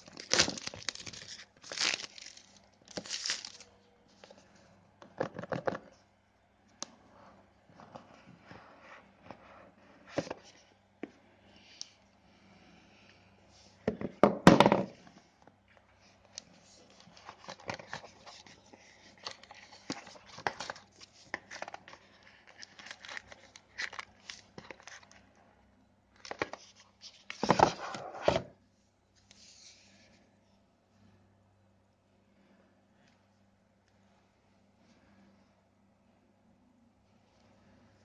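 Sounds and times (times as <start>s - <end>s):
packaging crinkling or tearing: 0.0s - 3.7s, 16.9s - 25.2s.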